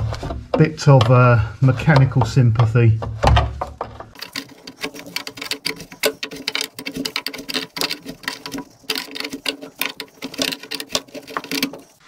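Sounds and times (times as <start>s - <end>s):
spanner clicking on metal nut: 4.2s - 12.0s.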